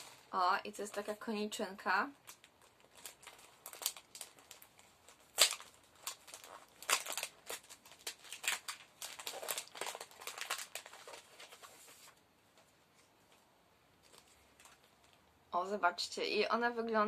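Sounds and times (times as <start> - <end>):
adhesive tape peeling and tearing: 5.3 - 10.0.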